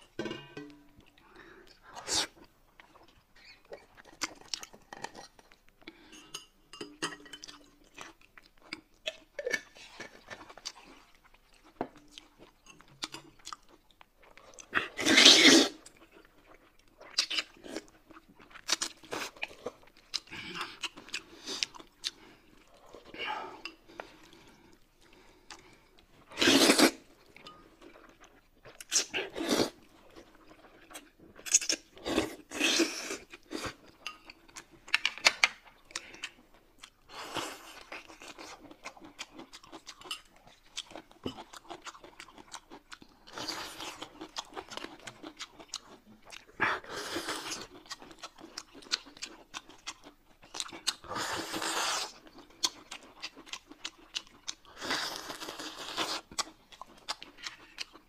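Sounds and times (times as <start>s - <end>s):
chewing and crunching food: 0.9s - 58.0s
slurping noodles and soup: 14.7s - 15.8s, 25.4s - 27.1s, 29.0s - 29.8s, 51.0s - 52.2s.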